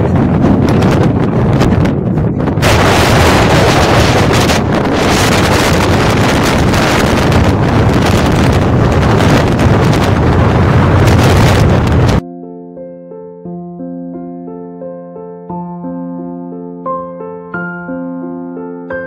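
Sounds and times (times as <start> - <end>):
strong wind on microphone: 0.0 - 12.2.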